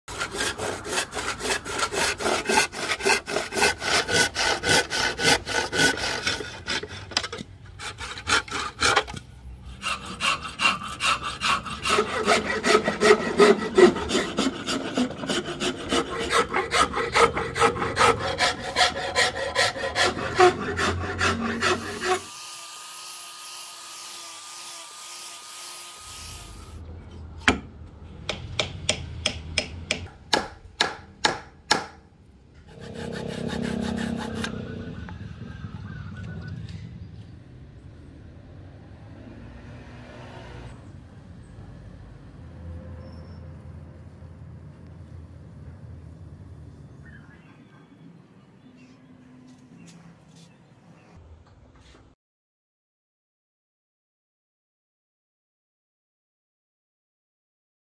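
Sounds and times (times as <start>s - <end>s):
hand file scraping wood: 0.1s - 22.5s, 32.6s - 34.6s
handsaw cutting wood: 0.1s - 26.8s, 32.7s - 34.6s.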